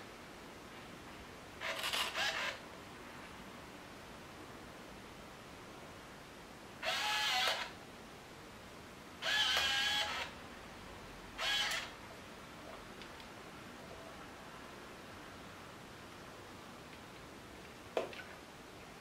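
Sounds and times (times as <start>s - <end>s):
camera motor whirring: 1.6s - 2.6s, 6.8s - 7.7s, 9.2s - 10.3s, 11.4s - 11.9s.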